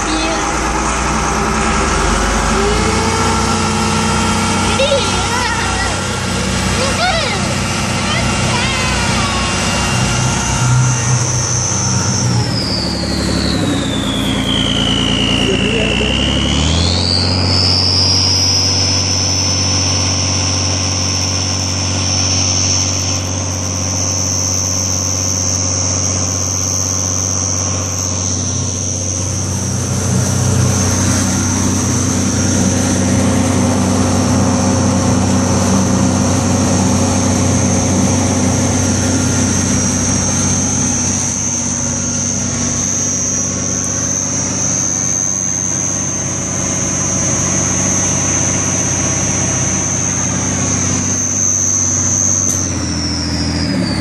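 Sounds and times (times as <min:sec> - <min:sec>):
diesel engine running: 0:00.0 - 0:54.0
turbo whistle: 0:08.0 - 0:21.2, 0:22.0 - 0:54.0.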